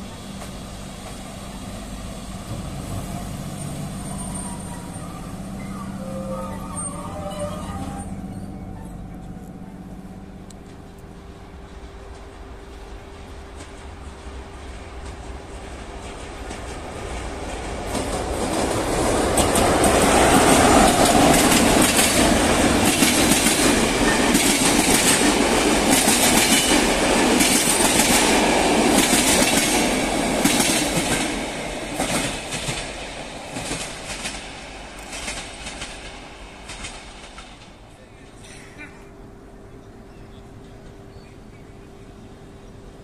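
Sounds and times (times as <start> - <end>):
fast train passing: 0.0 - 43.0
train wheels clacking on rail joints: 10.6 - 38.7.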